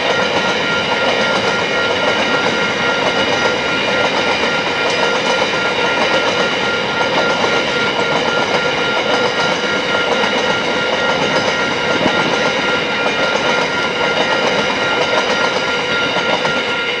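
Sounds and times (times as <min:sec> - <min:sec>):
steady high tones: 0:00.0 - 0:17.0
train wheels clattering over rails: 0:00.0 - 0:17.0.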